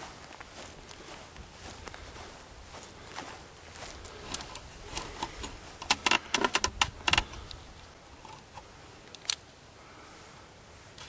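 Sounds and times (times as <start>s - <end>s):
camera handling clicks and rattles: 4.3s - 7.6s, 8.2s - 9.4s.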